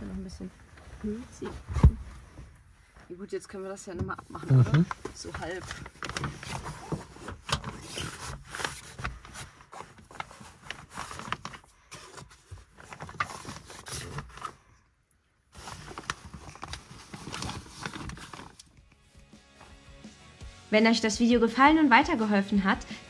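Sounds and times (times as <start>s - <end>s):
window cover rustling and clicking: 4.4s - 14.6s, 15.5s - 18.8s.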